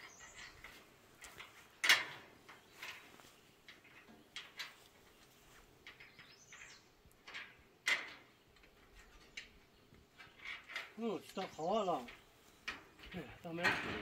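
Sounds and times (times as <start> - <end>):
bird chirping faintly: 0.0 - 0.8, 2.4 - 7.6
metal knocks and clanks: 10.2 - 14.0.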